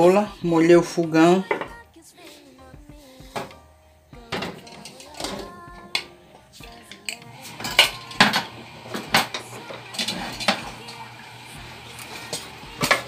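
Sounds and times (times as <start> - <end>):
metal cookware clanking: 4.3 - 6.1, 6.7 - 10.7.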